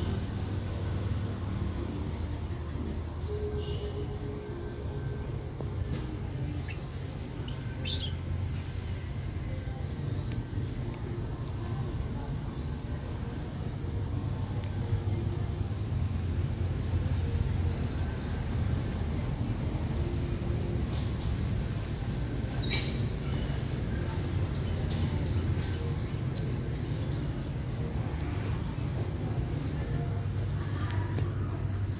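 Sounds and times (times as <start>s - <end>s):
high-pitched insect drone: 0.0s - 31.9s
high chirps: 6.6s - 8.9s.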